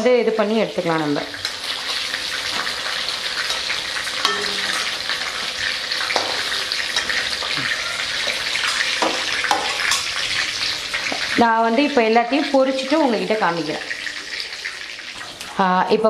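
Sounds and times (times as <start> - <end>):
oil bubbling and sizzling: 0.0 - 16.0
spatula clinking against pan: 3.5 - 5.0.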